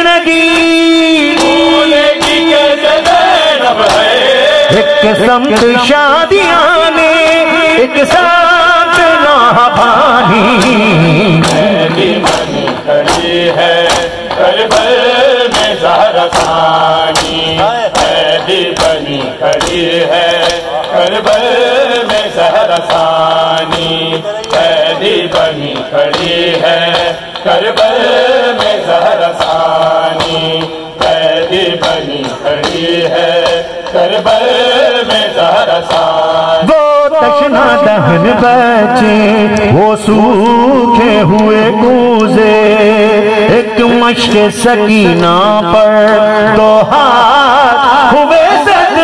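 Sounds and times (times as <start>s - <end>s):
voices chanting a lament: 0.0s - 49.0s
hands slapping bare chests: 2.2s - 4.3s, 11.4s - 34.5s.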